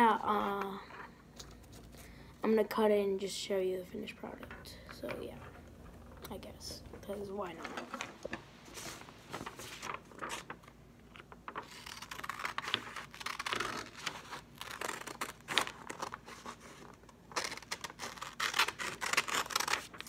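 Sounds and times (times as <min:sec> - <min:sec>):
paper rustling: 0:07.1 - 0:20.0
scissors cutting paper: 0:11.6 - 0:16.2, 0:17.3 - 0:20.0.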